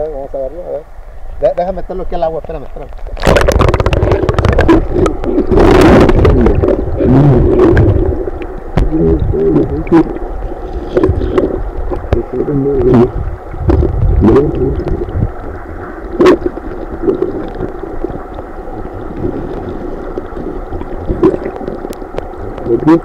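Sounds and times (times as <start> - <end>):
underwater stream gurgling: 0.0 - 23.0.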